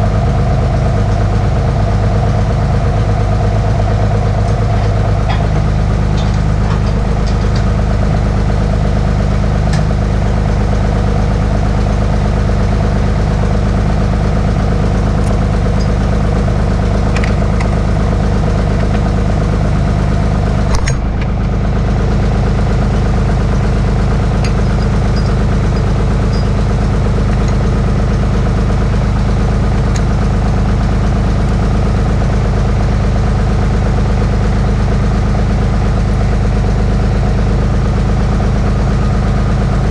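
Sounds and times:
diesel tractor engine idling: 0:00.0 - 0:39.9
sharp metal clank: 0:20.7 - 0:21.4.

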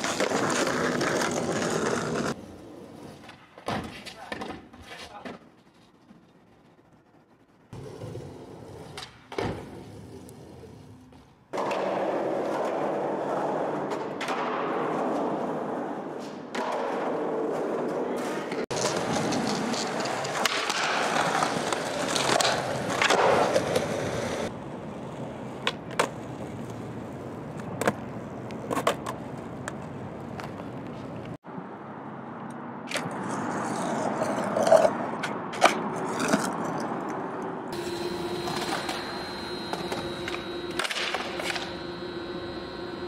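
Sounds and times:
skateboard wheels rolling on concrete: 0:00.0 - 0:43.0
skateboard clacks: 0:16.2 - 0:26.9
steady hum: 0:37.7 - 0:43.0.

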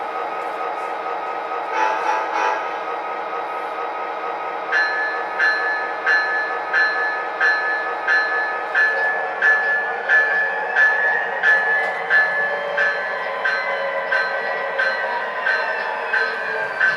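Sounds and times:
model train rumbling on track: 0:00.0 - 0:16.9
metallic track clicks: 0:04.8 - 0:16.9.

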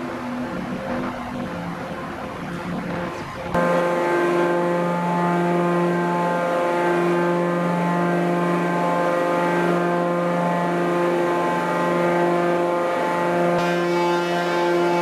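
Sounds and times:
hydraulic machine humming: 0:00.0 - 0:15.0.

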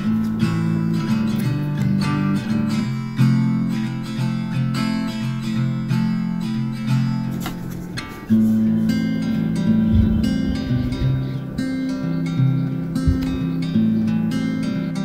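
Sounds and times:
acoustic guitar folk chords: 0:00.0 - 0:15.0.

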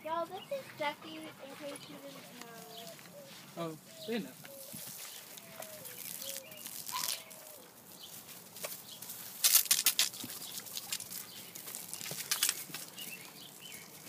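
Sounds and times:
garden hose spray splashing: 0:04.5 - 0:14.0.

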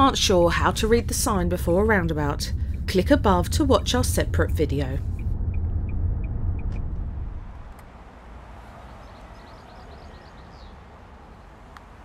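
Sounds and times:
car road rumble: 0:00.0 - 0:12.0
faint outdoor background: 0:00.0 - 0:12.0
bird chirping: 0:08.8 - 0:10.8.

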